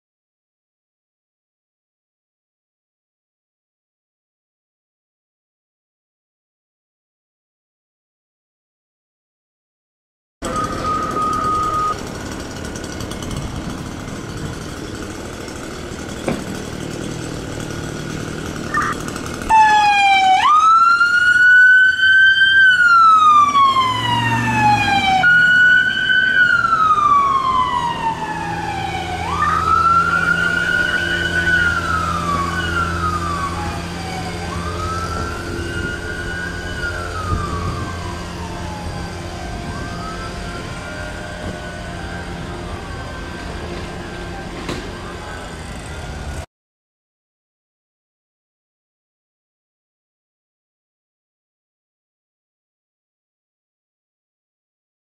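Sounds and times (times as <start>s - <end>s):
fire truck siren wailing: 10.4s - 14.7s, 18.6s - 46.4s
engine humming: 10.4s - 21.5s, 22.7s - 46.4s.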